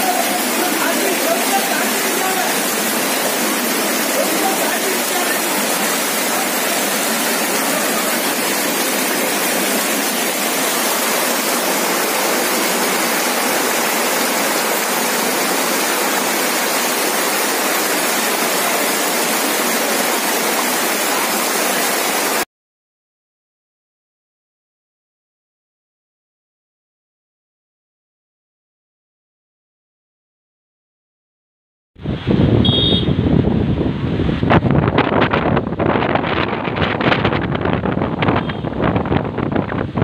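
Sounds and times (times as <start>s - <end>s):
floodwater roaring: 0.0s - 22.5s, 32.0s - 40.0s.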